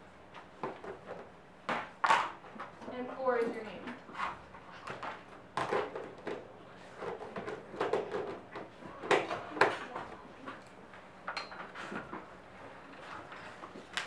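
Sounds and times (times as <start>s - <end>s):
knocks and clatter on desks: 0.5s - 2.7s, 3.9s - 10.1s.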